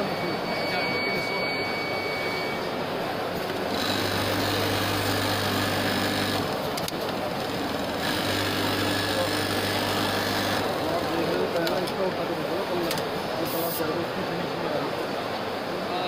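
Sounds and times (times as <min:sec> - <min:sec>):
sewing machine whirring: 0:03.5 - 0:11.8.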